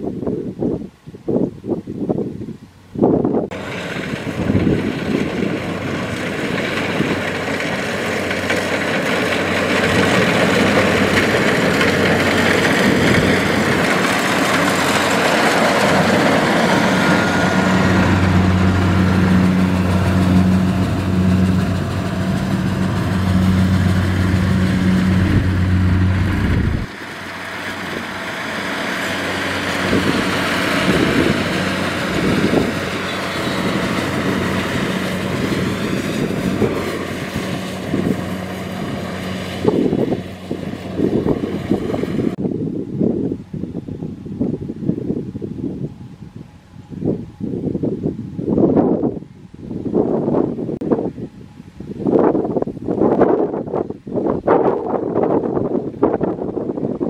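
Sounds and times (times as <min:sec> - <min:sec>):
combine harvester running: 0:03.3 - 0:42.6.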